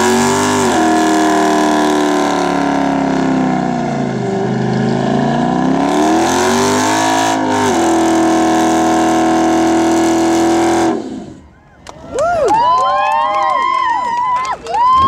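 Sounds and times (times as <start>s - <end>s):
car engine revving high: 0.0s - 11.4s.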